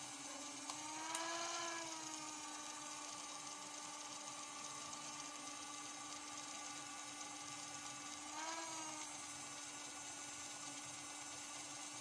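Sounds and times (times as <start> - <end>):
disc repair machine motor hum: 0.0 - 12.0
small clicks: 0.6 - 1.4.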